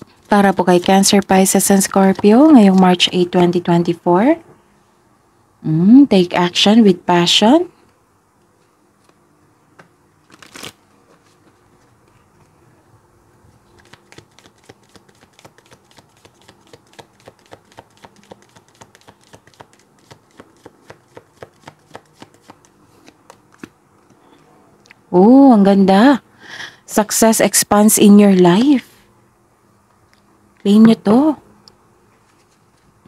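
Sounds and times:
cards snapping while shuffled: 13.7 - 23.8.

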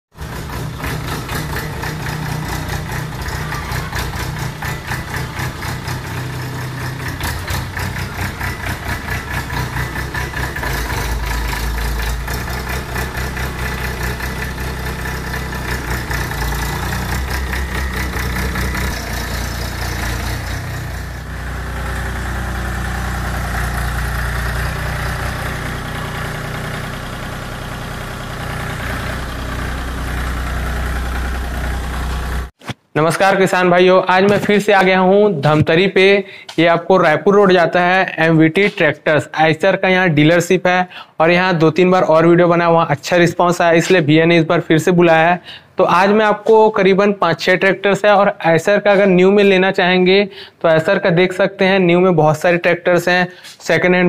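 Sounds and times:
tractor diesel engine idling: 0.1 - 32.5.

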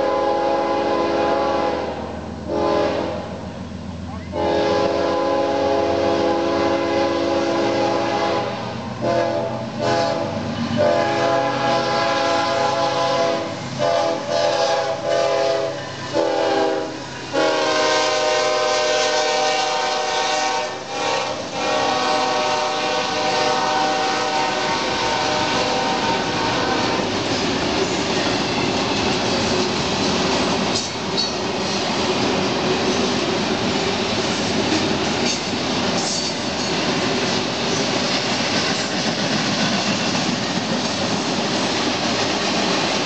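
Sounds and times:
locomotive air horn blasts: 0.0 - 3.4, 4.3 - 27.1
train rumble and wheel clatter: 0.0 - 43.0.

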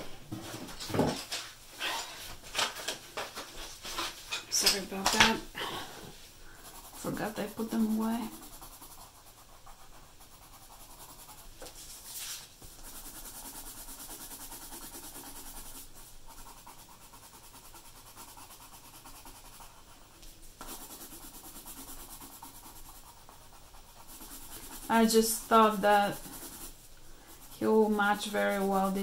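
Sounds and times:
pencil scratching on paper: 6.5 - 29.0
paper rustling: 11.6 - 12.5.

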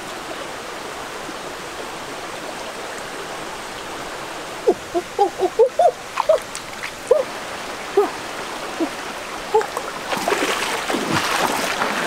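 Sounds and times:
rocky stream running: 0.0 - 12.0
water splashing: 4.7 - 12.0.

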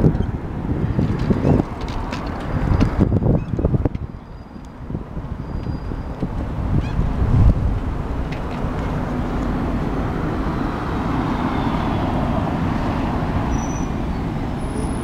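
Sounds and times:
low rumble of traffic: 0.0 - 15.0
vehicle passing: 6.5 - 15.0.

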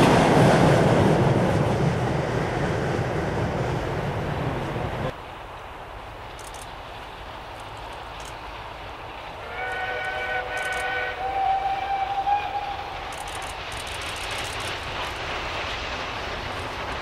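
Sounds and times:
approaching train noise: 0.0 - 17.0
distant steam locomotive whistle: 9.4 - 13.3.

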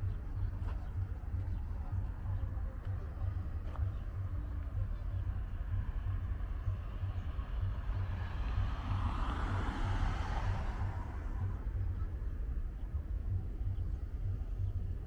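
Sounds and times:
steady low rumble: 0.0 - 15.0
car passing: 6.6 - 12.0.

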